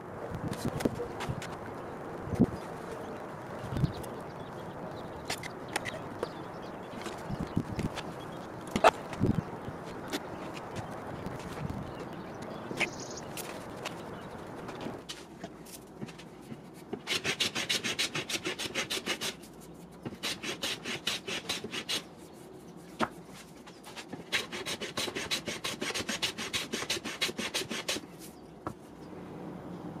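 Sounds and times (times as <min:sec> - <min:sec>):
hand plane shaving wood: 0:16.9 - 0:22.1, 0:23.9 - 0:28.1.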